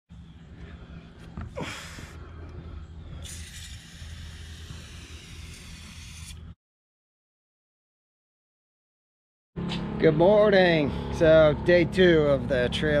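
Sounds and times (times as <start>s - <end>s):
steady low rumble: 0.1s - 3.3s, 9.6s - 13.0s
aerosol spray can hissing: 3.2s - 6.4s.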